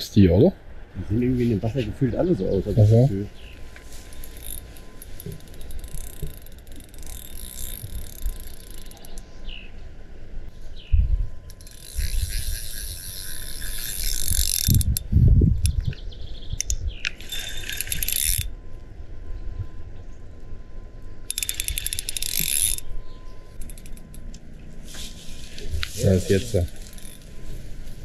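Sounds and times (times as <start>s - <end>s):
fishing reel ratcheting: 4.1s - 9.2s, 11.5s - 15.8s, 17.1s - 18.5s, 21.3s - 22.9s, 23.6s - 24.2s, 26.6s - 27.4s.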